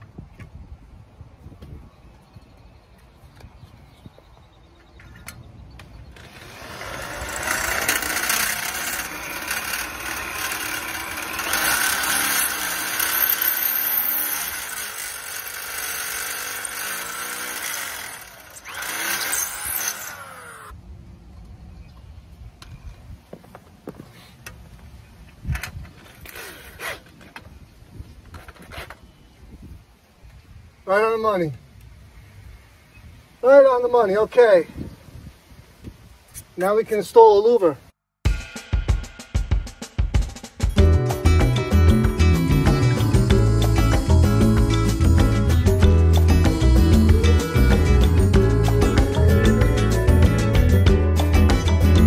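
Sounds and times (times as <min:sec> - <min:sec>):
power drill running: 0:06.2 - 0:20.8.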